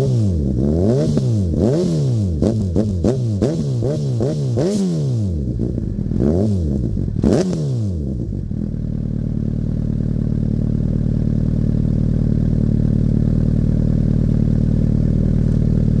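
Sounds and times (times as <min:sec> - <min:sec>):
motorcycle engine idling: 0:05.2 - 0:16.0.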